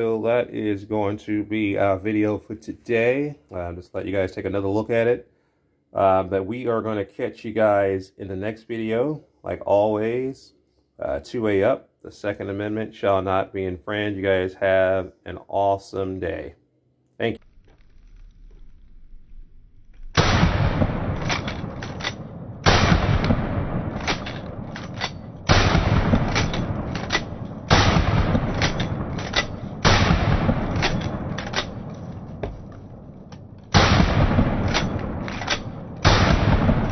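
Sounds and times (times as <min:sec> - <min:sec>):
shotgun shots echoing: 0:20.2 - 0:36.9
shotgun pump action clacks: 0:21.1 - 0:36.9.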